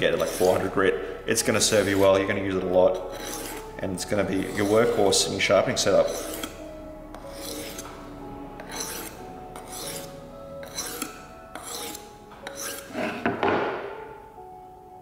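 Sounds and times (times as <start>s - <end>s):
knife rasping on sharpening plate: 0.2s - 0.7s, 1.6s - 2.1s, 3.0s - 3.7s, 4.4s - 5.0s, 5.9s - 8.0s, 8.6s - 13.2s.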